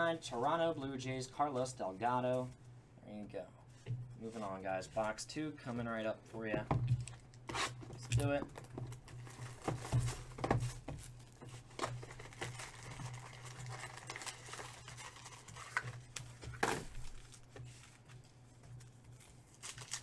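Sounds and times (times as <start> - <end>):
foil card packs crinkling: 7.0 - 20.0.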